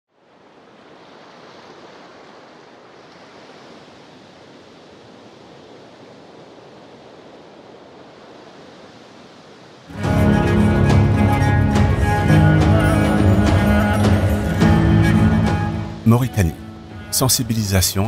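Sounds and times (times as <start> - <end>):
sea surf rushing: 0.2 - 18.0.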